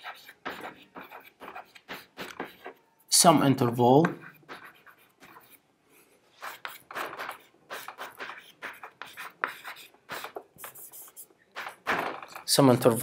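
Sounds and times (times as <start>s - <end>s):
chalk scratching on chalkboard: 0.0s - 2.9s, 4.0s - 5.6s, 6.3s - 12.0s.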